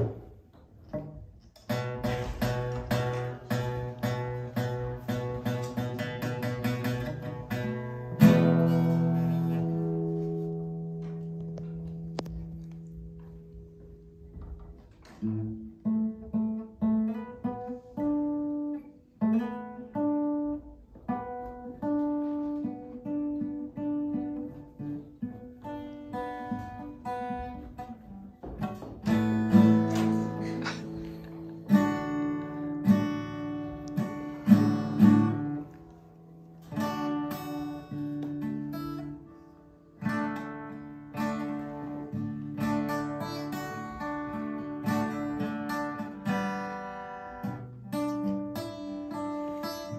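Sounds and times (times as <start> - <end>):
acoustic guitar: 0.0 - 49.9.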